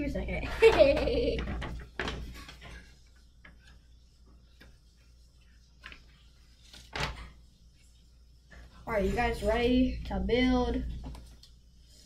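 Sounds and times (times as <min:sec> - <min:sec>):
paper rustling: 0:01.6 - 0:08.0.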